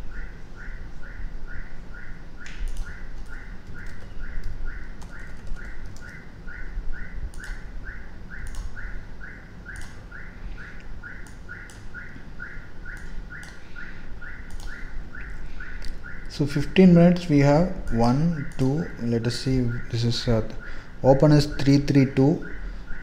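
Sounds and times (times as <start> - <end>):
sharp mouse clicks: 2.4 - 6.1, 7.3 - 7.6, 8.4 - 8.8, 9.7 - 10.0, 11.2 - 11.9, 13.0 - 13.6, 14.5 - 14.8.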